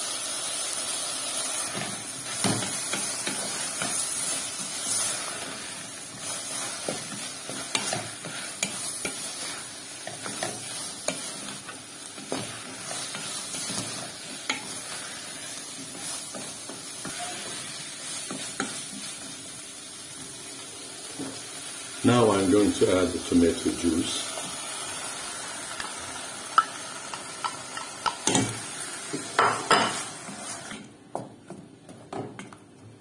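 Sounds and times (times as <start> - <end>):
food sizzling in hot oil: 0.0 - 31.0.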